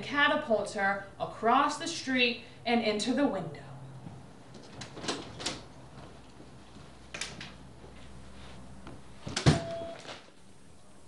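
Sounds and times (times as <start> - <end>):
door shutting with knock: 9.3 - 9.7.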